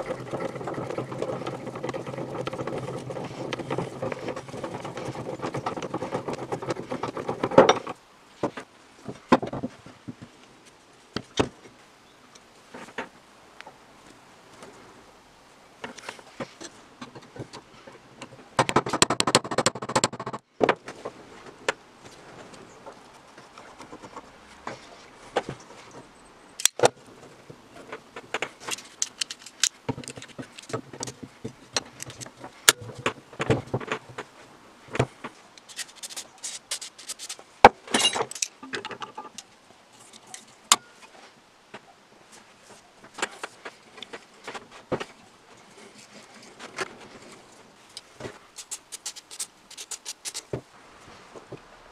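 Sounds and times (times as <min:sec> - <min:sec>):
metal tools scraping: 0:35.6 - 0:39.3.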